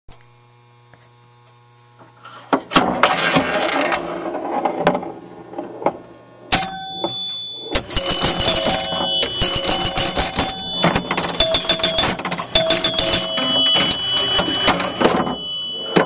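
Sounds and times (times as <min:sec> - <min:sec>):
transformer hum: 0:05.2 - 0:16.0
lingering ringing tone: 0:06.5 - 0:16.0
pinball machine clicking and clattering: 0:06.5 - 0:16.0.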